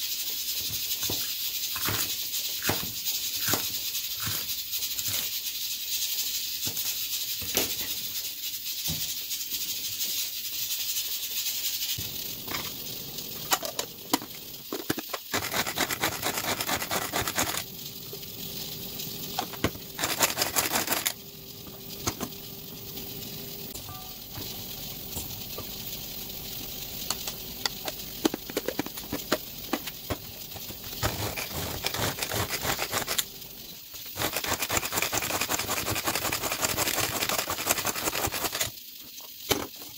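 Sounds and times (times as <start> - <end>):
hand-pull chopper rattling: 15.3 - 17.7, 20.0 - 21.2, 28.2 - 33.3, 34.0 - 38.7.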